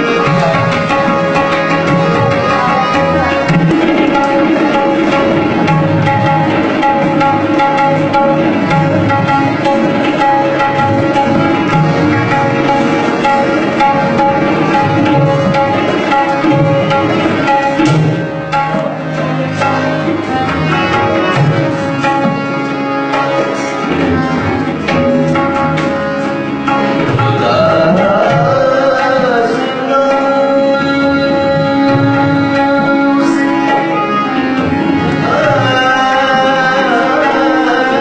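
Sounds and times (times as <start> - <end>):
melodic accompaniment of held notes: 0.0 - 38.0
tabla playing: 0.0 - 38.0.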